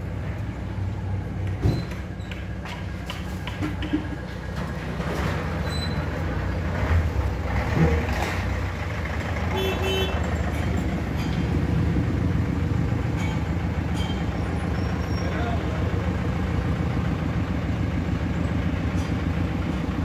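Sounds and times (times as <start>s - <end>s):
vehicle rumble: 0.0s - 20.0s.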